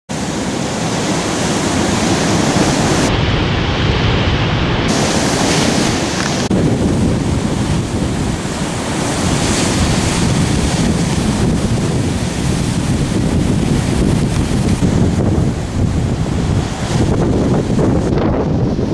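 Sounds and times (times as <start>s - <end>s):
ocean surf breaking: 0.1s - 18.9s
wind buffeting the microphone: 1.0s - 18.9s.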